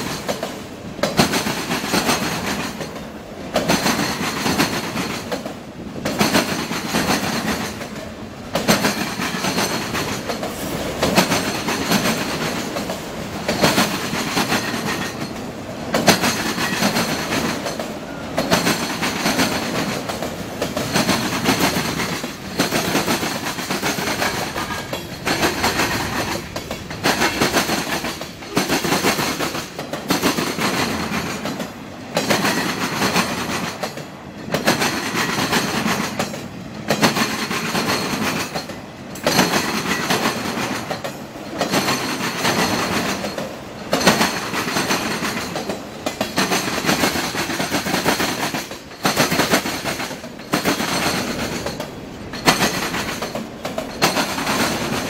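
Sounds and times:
train wheels clattering over crossing: 0.0s - 55.0s.

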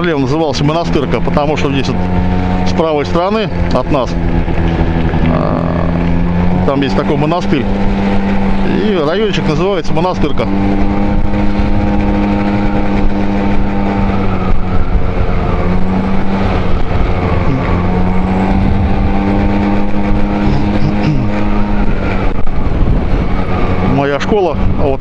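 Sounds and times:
road rumble: 0.0s - 25.0s
wind: 0.0s - 25.0s
scooter engine running: 0.6s - 23.9s.

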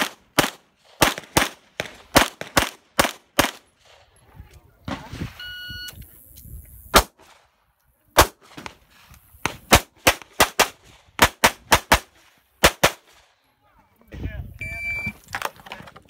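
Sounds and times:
pistol shots: 0.0s - 3.7s, 6.9s - 7.3s, 8.2s - 8.8s, 9.4s - 13.2s.

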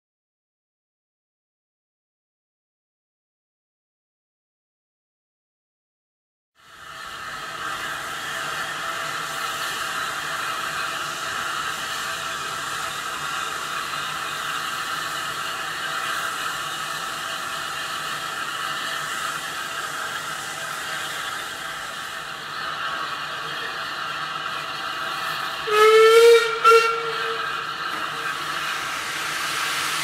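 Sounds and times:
steam hissing from locomotive: 6.6s - 30.0s.

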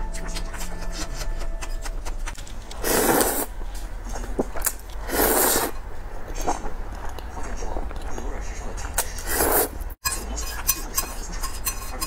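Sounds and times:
noodles slurped: 2.8s - 3.5s, 4.6s - 5.8s.

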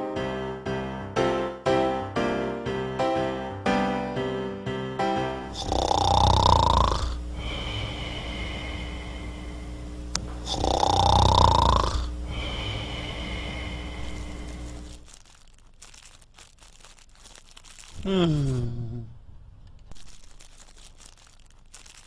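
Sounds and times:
loud snore: 5.5s - 7.2s, 10.4s - 14.2s
steady hum: 5.5s - 15.8s
faint crackling: 9.6s - 22.0s.

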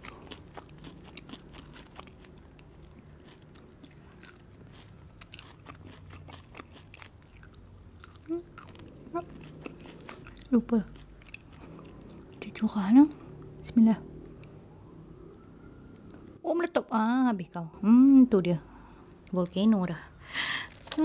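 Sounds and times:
chewing crispy fries: 0.0s - 13.5s.

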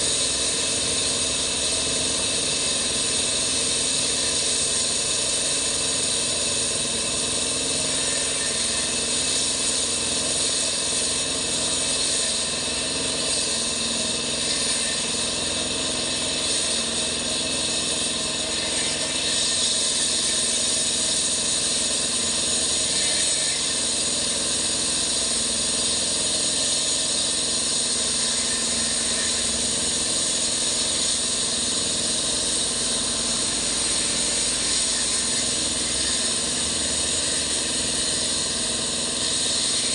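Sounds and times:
concrete cutter engine running: 0.0s - 39.9s
strong hiss: 17.6s - 39.9s.

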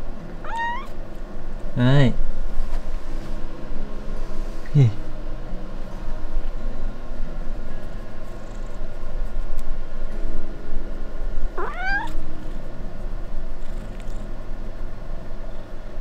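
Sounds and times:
steady low hum: 0.0s - 16.0s
cat meowing: 0.4s - 1.0s, 11.6s - 12.2s.

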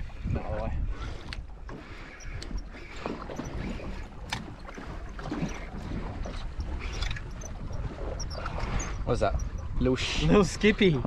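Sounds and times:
water lapping against boat hull: 0.0s - 11.0s
wind buffeting microphone: 0.0s - 11.0s.

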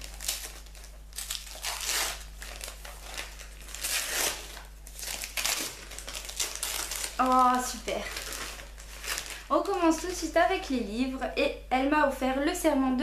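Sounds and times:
wrapping paper crinkling: 0.0s - 10.4s.

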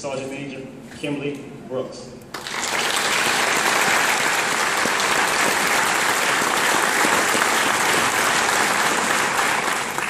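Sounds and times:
audience applauding: 2.3s - 10.0s.

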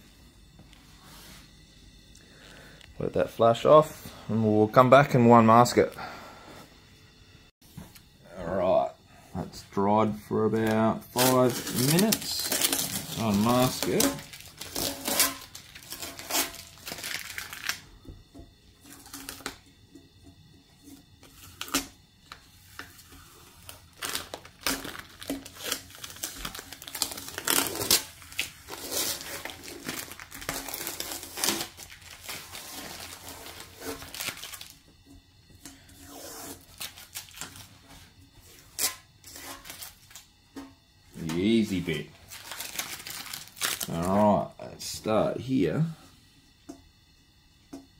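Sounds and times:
masking tape peeling and crumpling: 10.6s - 17.8s, 22.8s - 34.8s, 36.2s - 37.7s, 42.3s - 44.2s.

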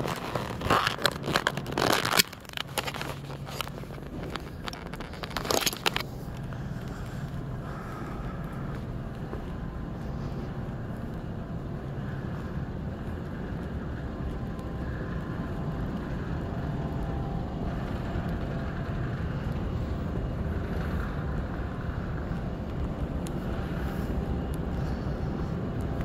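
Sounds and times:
low rumbling terminal hall noise: 0.0s - 26.0s.

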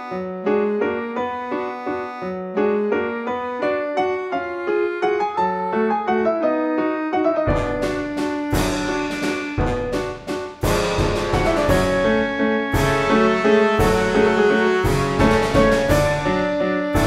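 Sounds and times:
piano music: 0.0s - 17.0s
sharp percussive strikes: 7.5s - 17.0s.

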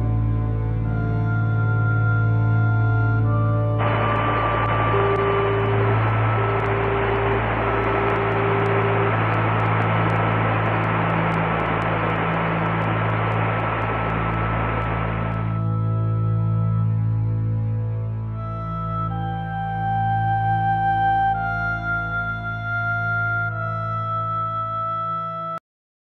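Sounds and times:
low steady hum: 0.0s - 25.4s
whistling tones: 0.7s - 17.6s, 18.4s - 25.4s
radio static hiss: 3.8s - 16.6s.

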